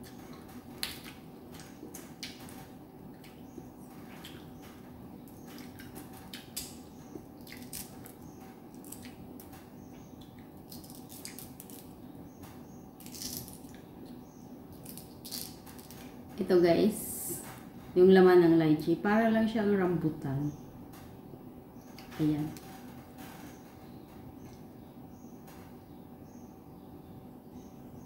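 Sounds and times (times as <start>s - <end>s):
shell cracking while peeled: 0.0s - 2.6s, 5.3s - 9.6s, 10.2s - 16.2s
faint steady hum: 0.0s - 28.0s.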